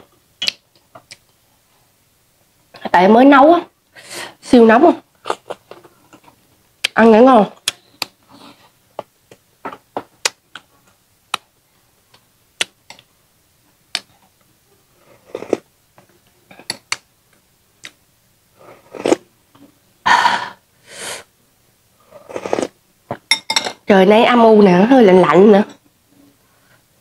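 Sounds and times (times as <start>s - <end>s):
slurping soup: 15.0s - 15.7s, 18.6s - 19.2s, 22.0s - 22.8s.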